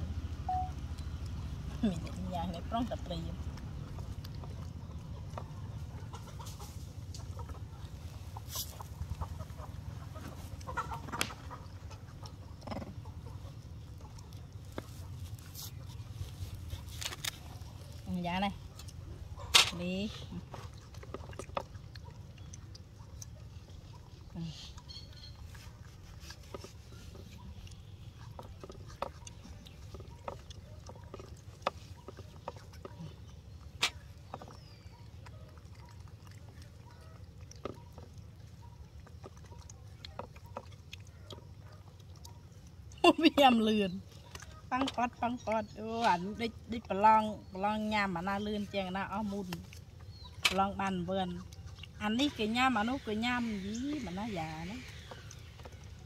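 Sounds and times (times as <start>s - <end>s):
low steady rumble: 0.0s - 56.0s.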